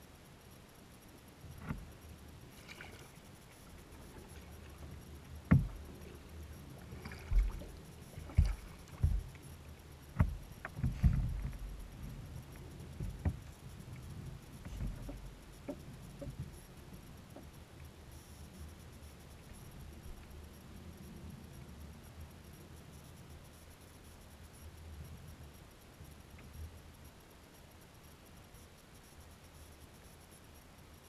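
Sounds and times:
faint low rumble: 0.0s - 31.0s
thumps on plastic kayak hull: 5.5s - 5.8s, 7.2s - 9.3s, 10.2s - 11.7s.

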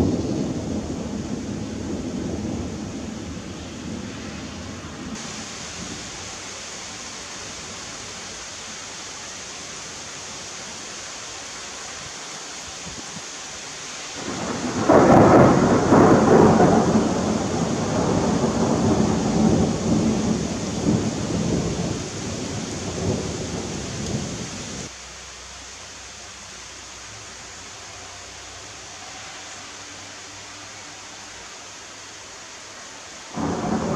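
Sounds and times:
thunder rumbling: 0.0s - 6.4s, 14.2s - 24.9s, 33.4s - 33.9s
rain hiss: 0.0s - 33.9s.

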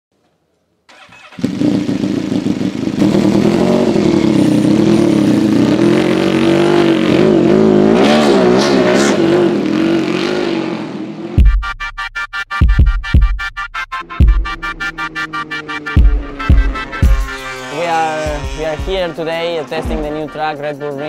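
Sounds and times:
motorcycle engine idling: 0.9s - 5.7s.

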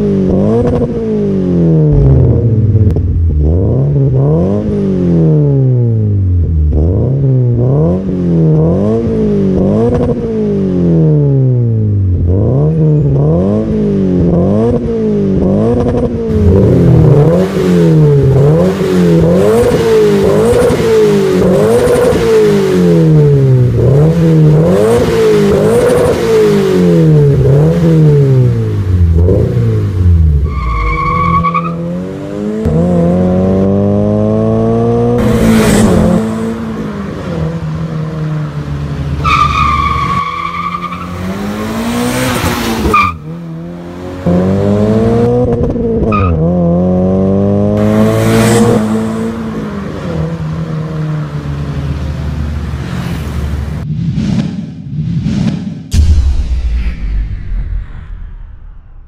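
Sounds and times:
car engine revving and accelerating: 0.0s - 53.8s
tire squeals: 30.4s - 32.0s, 39.2s - 41.6s, 42.8s - 43.3s.

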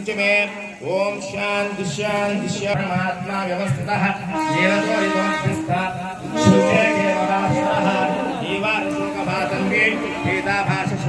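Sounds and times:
voices singing devotional chant: 0.3s - 11.0s.

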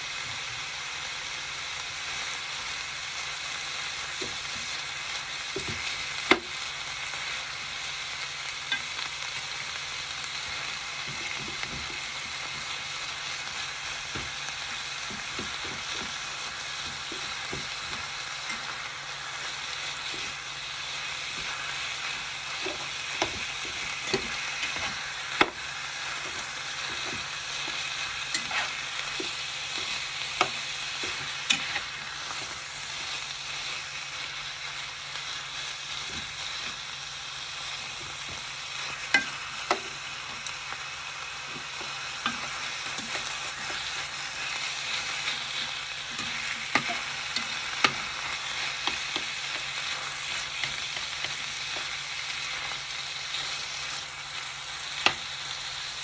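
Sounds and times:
food sizzling in a frying pan: 0.0s - 56.0s
spatula scraping a pan: 13.5s - 33.8s, 41.5s - 53.6s.

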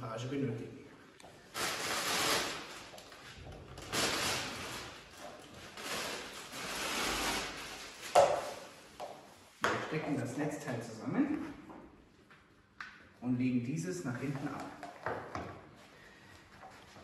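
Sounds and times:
plastic wrapping rustling: 1.4s - 9.0s.

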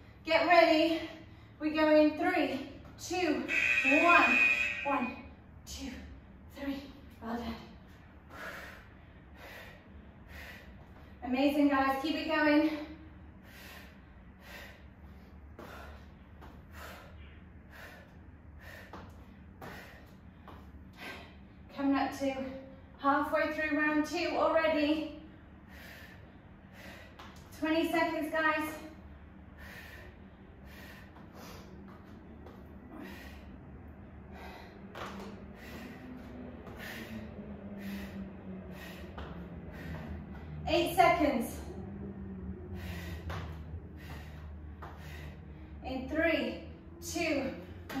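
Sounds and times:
low steady hum: 0.0s - 48.0s
woman breathing hard: 7.8s - 11.2s, 12.7s - 21.8s, 25.3s - 27.6s, 29.0s - 40.6s, 41.5s - 45.8s.

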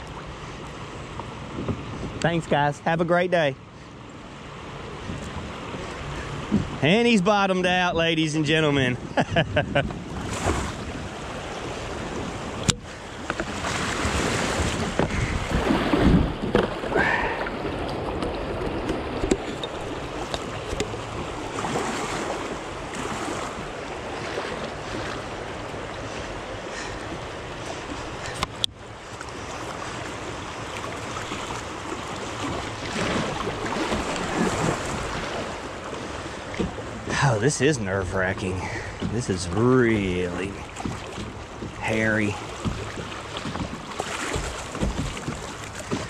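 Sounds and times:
wind buffeting microphone: 4.9s - 7.0s, 8.7s - 28.5s
river water rushing: 10.1s - 46.0s.

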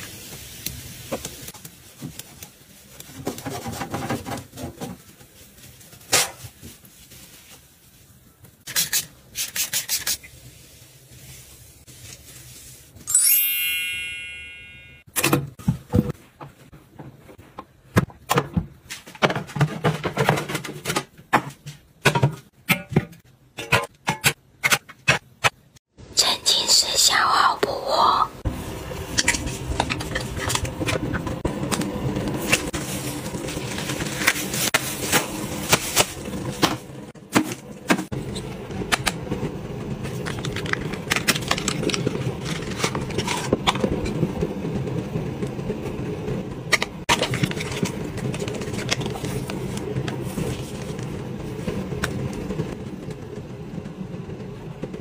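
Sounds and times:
cloth wiping a kitchen surface: 0.0s - 13.1s, 32.3s - 36.6s
bright shimmering chime: 13.1s - 15.0s.

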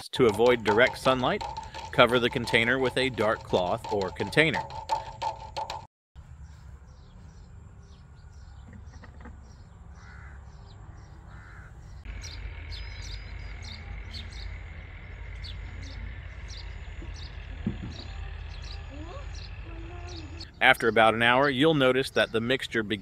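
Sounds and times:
small birds chirping: 0.2s - 23.0s
crow cawing: 10.0s - 11.9s.

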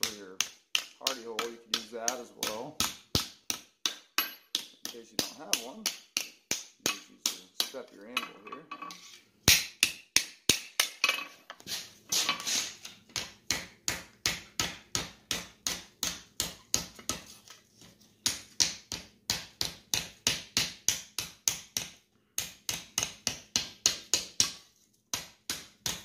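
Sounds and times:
hammer striking hot steel on anvil: 9.5s - 11.0s.

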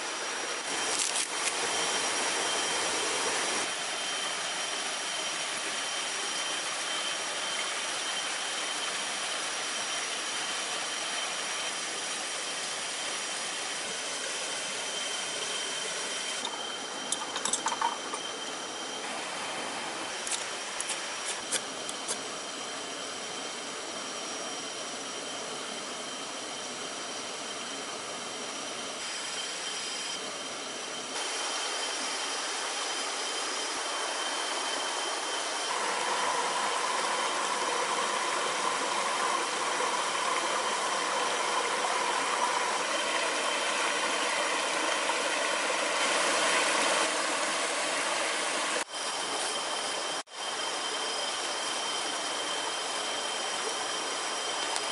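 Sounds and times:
forest stream rushing: 0.0s - 16.5s, 18.6s - 21.9s, 31.2s - 54.9s.

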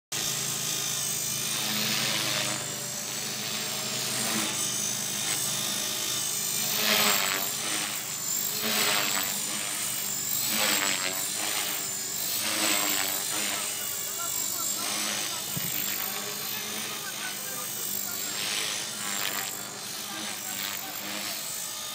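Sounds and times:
rotor blade buzz: 0.1s - 21.9s
rc helicopter motor whine: 0.2s - 21.9s.

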